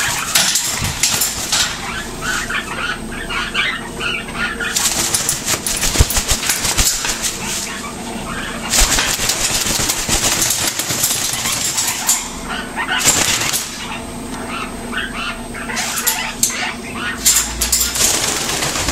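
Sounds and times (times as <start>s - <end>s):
parrot wings flapping: 0.0s - 2.4s, 4.6s - 7.8s, 8.6s - 12.2s, 13.0s - 13.9s, 17.2s - 18.9s.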